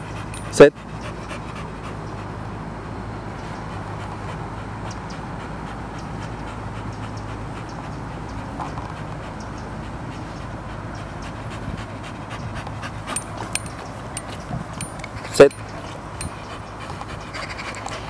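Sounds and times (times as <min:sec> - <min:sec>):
dog panting: 0:00.0 - 0:02.7, 0:03.3 - 0:18.0
steady low hum: 0:00.0 - 0:18.0.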